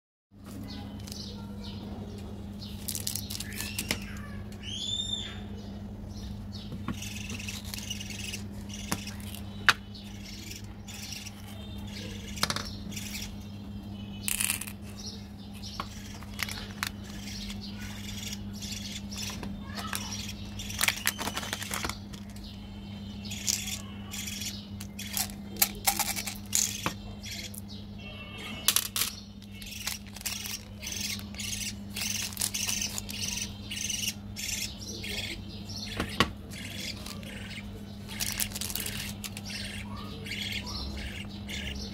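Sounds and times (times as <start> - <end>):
steady low hum: 0.4 - 41.9
bird chirps: 2.6 - 41.9
plastic egg clicking: 28.7 - 33.4, 38.1 - 39.6
plastic wrappers crackling: 28.9 - 31.3, 31.9 - 33.2, 38.1 - 39.4.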